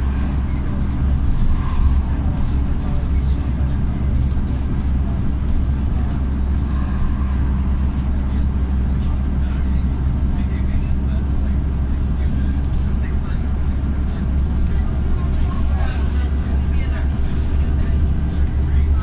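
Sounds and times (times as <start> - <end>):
bus engine drone: 0.0 - 19.0
road noise: 0.0 - 19.0.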